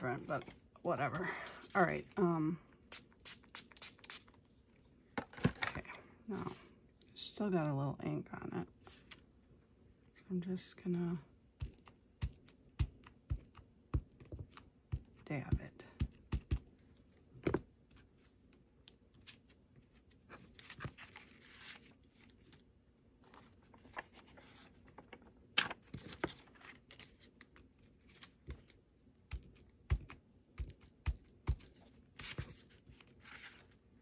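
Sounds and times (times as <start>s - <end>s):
paper and stencil rustling: 19.2s - 22.6s, 31.5s - 33.8s.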